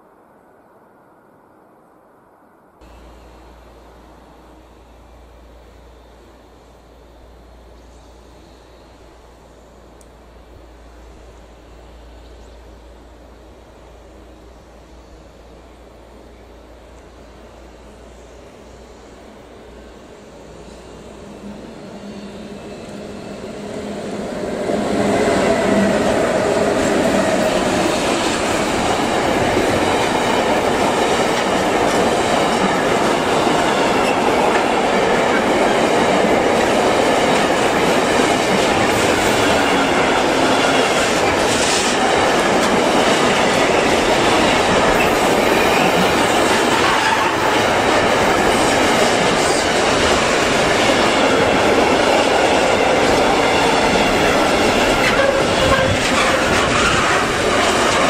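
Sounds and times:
train wheels on rails: 2.8 - 58.0.

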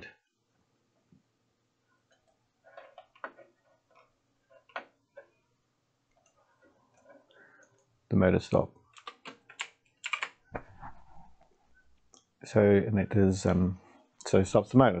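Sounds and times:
mouse and keyboard clicks: 9.0 - 11.0.

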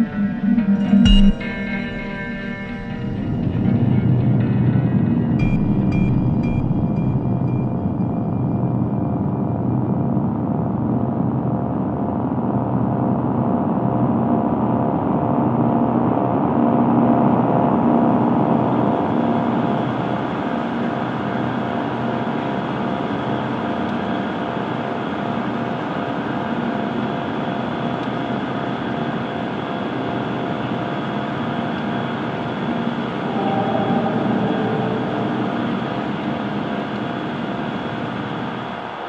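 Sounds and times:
held tones: 0.0 - 3.6
droning rumble: 0.0 - 10.9, 32.3 - 39.0.

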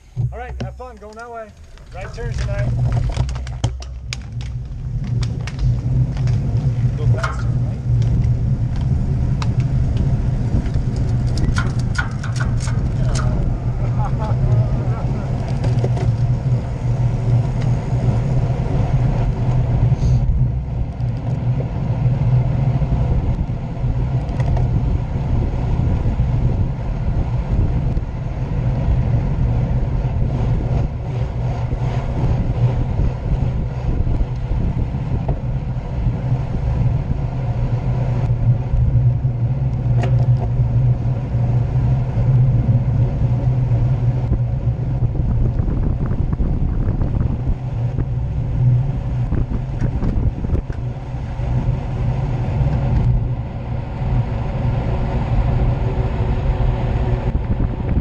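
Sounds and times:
bike tyres rolling on asphalt: 0.0 - 58.0
wind on microphone: 0.0 - 58.0.

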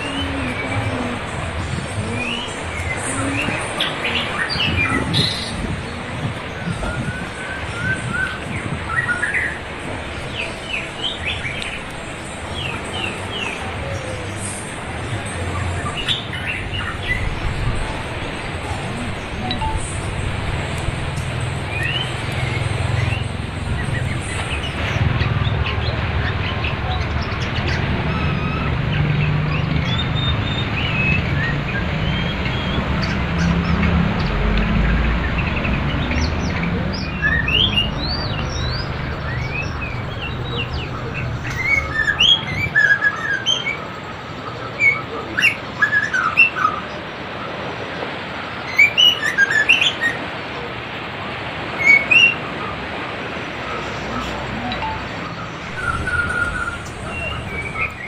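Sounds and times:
river water rushing: 0.0 - 58.0
songbird chirping and whistling: 19.3 - 20.1, 37.0 - 43.8, 54.1 - 58.0.

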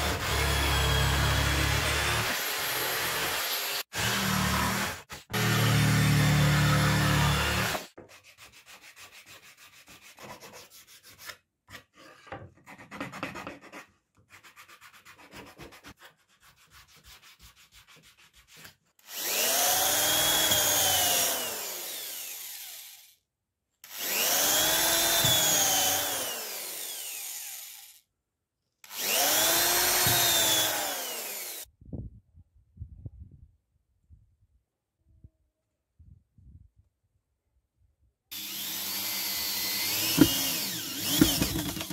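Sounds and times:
electric drill whining: 0.0 - 7.9, 19.0 - 23.2, 23.8 - 28.0, 28.8 - 31.7, 38.3 - 41.9
sandpaper rubbing on wood: 8.1 - 11.3.

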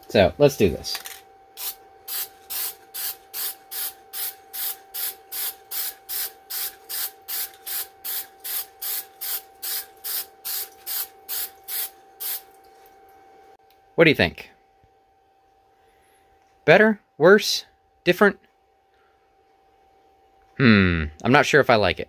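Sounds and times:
spray can hissing in bursts: 1.6 - 12.5.

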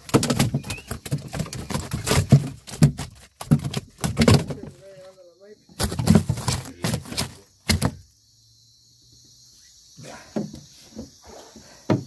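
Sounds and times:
knocks and thumps on fish box: 0.0 - 4.8, 5.8 - 8.0
night insects chirring: 0.0 - 12.0.

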